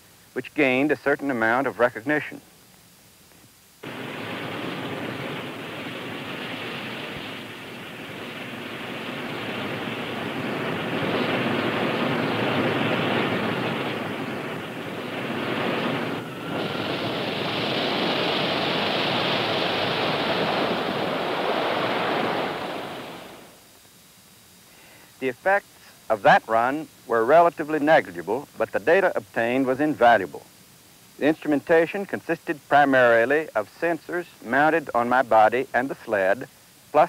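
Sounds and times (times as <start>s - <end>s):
rocket sled rushing noise: 3.8s - 23.6s.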